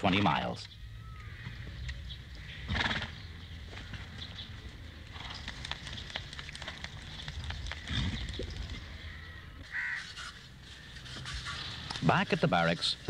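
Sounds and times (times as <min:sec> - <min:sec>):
hooves knocking on hard ground: 0:01.2 - 0:09.3.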